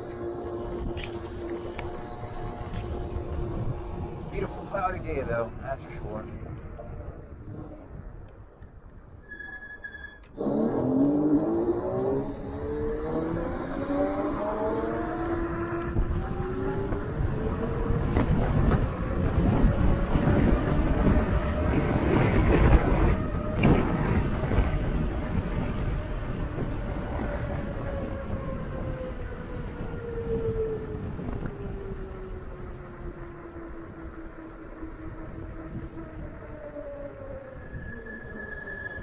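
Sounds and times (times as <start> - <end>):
electric bike motor whining: 0.0 - 4.6
wind on microphone: 0.0 - 9.6, 10.3 - 39.0.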